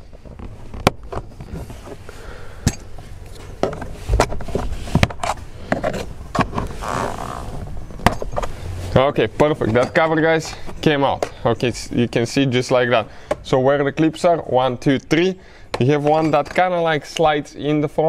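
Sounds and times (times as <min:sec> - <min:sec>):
plastic panel scraping and rustling: 0:03.4 - 0:10.8.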